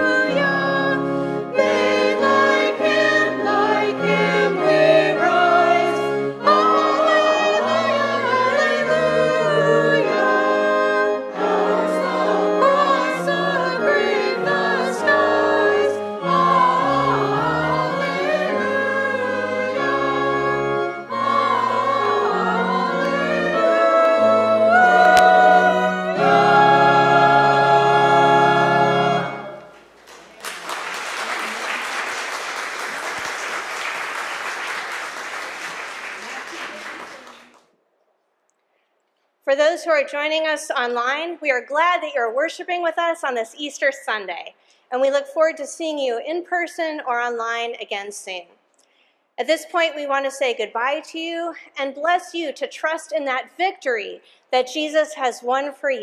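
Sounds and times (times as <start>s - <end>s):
choir singing a hymn: 0.0s - 29.7s
sustained instrumental accompaniment: 0.0s - 29.9s
congregation applauding: 29.6s - 37.7s.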